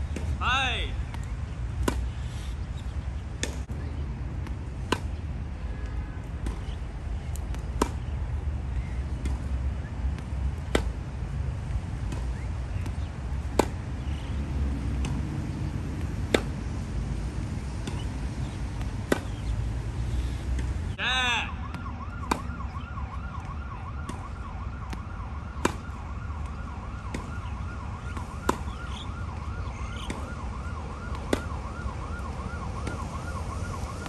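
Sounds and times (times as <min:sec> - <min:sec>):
racket striking tennis ball: 0:01.8 - 0:02.2, 0:03.4 - 0:03.7, 0:04.4 - 0:05.2, 0:06.3 - 0:06.8, 0:07.4 - 0:08.2, 0:10.2 - 0:11.1, 0:12.0 - 0:14.0, 0:14.8 - 0:15.3, 0:15.9 - 0:16.7, 0:17.4 - 0:20.8, 0:22.2 - 0:22.5, 0:25.6 - 0:26.0, 0:27.1 - 0:27.4, 0:28.1 - 0:28.8, 0:30.0 - 0:30.3, 0:32.8 - 0:33.1
ball bouncing: 0:14.8 - 0:19.6, 0:21.7 - 0:27.4, 0:28.0 - 0:31.8, 0:32.8 - 0:33.3.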